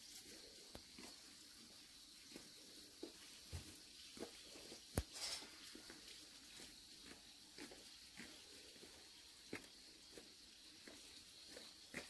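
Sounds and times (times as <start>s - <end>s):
faint high hiss: 0.0s - 12.0s.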